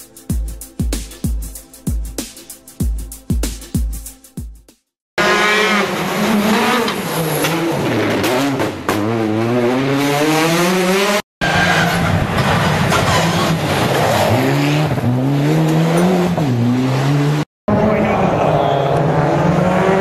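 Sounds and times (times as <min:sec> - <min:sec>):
rally car engines revving: 0:05.2 - 0:20.0.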